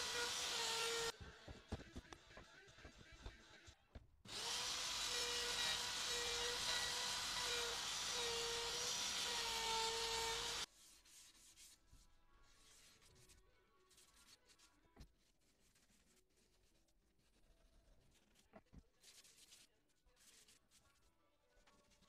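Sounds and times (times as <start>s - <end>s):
wood router whining: 0.0s - 1.1s, 4.3s - 10.6s
faint handling sounds: 10.7s - 22.0s.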